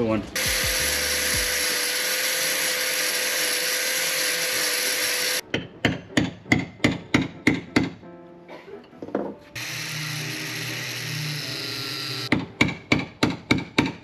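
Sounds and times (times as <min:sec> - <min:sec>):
angle grinder grinding wood: 0:00.4 - 0:05.4, 0:09.6 - 0:12.3
hammer tapping wooden plug: 0:05.5 - 0:08.0, 0:12.3 - 0:14.0.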